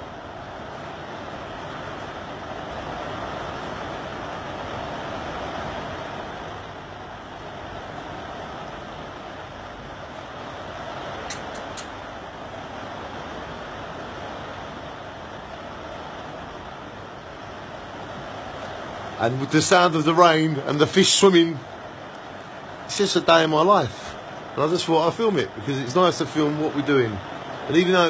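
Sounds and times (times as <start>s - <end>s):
heavy rain: 0.0s - 28.0s
quick clicks: 11.3s - 12.0s.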